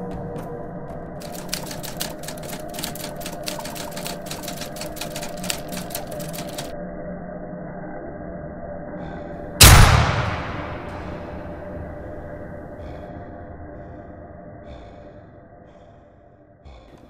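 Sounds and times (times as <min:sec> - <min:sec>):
low steady drone: 0:00.0 - 0:17.0
keyboard keys clicking: 0:01.2 - 0:06.7.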